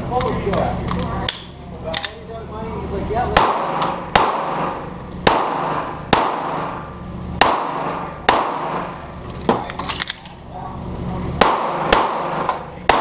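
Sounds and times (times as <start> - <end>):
pistol shots echoing: 3.4 - 9.0, 11.4 - 13.0.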